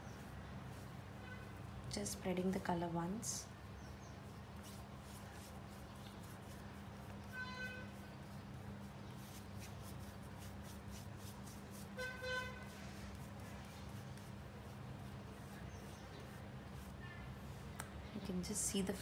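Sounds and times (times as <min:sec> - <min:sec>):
paintbrush dabbing through stencil: 0:00.0 - 0:19.0
distant vehicle horn tooting: 0:07.3 - 0:08.0, 0:12.0 - 0:12.7.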